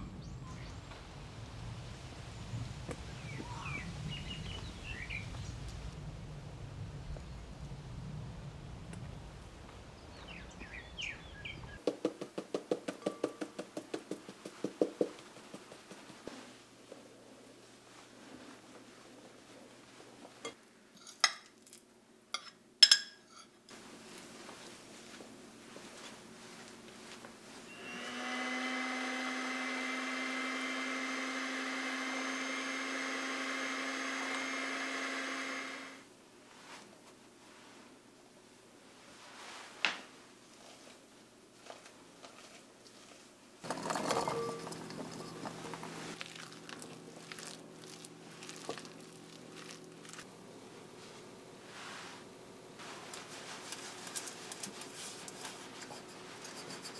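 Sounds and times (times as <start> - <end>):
bird chirps: 0.0 - 1.0, 3.1 - 5.7, 10.0 - 11.8
outdoor background noise: 0.0 - 56.9
electric blender motor running: 27.7 - 36.0.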